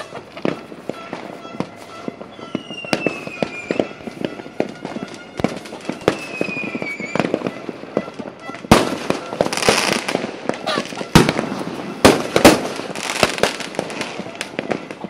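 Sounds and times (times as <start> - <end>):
fireworks bangs and crackles: 0.0 - 15.0
fireworks whistles: 0.0 - 15.0.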